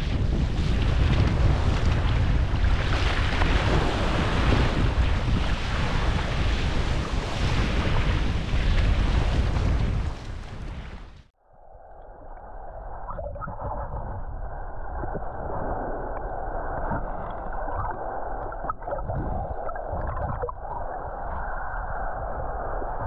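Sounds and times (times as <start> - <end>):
small waves washing ashore: 0.0 - 11.1.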